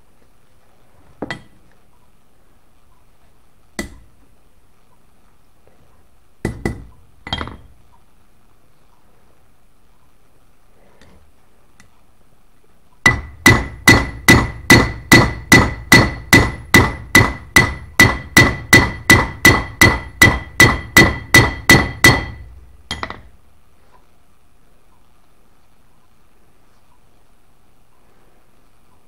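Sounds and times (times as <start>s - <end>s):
hammer striking metal: 3.8s - 4.1s, 6.5s - 7.6s, 13.1s - 23.3s.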